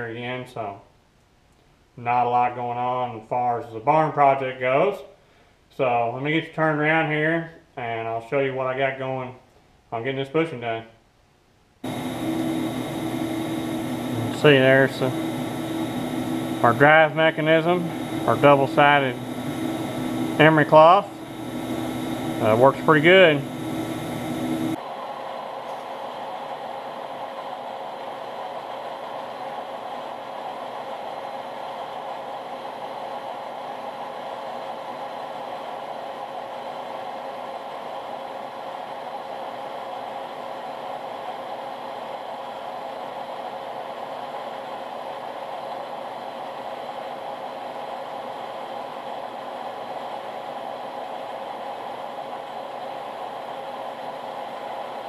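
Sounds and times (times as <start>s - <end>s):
metal lathe humming: 11.8s - 24.8s.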